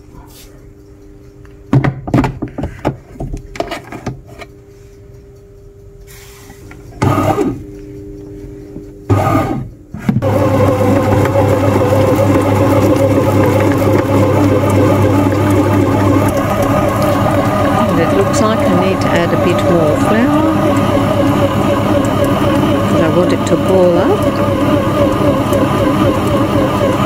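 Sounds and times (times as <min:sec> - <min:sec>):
bread machine kneading motor: 0:06.0 - 0:27.0.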